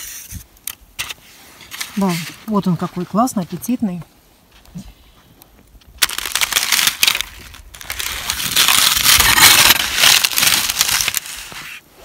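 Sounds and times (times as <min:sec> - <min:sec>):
plastic bowl crackling: 0:06.0 - 0:11.8.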